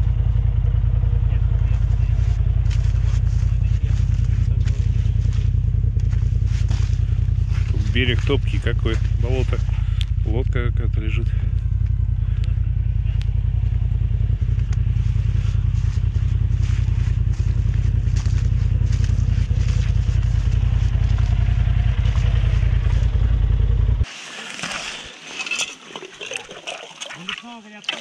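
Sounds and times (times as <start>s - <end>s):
buggy engine low rumble: 0.0s - 24.2s.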